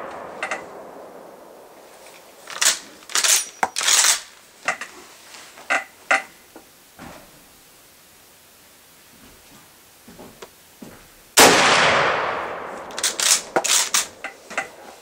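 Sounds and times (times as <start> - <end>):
rifle bolt clacking: 2.5 - 4.3, 12.8 - 14.8.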